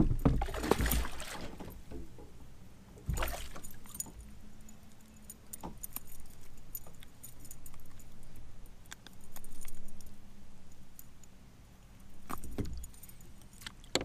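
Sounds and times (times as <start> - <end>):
metal lure jingling: 3.3 - 11.3.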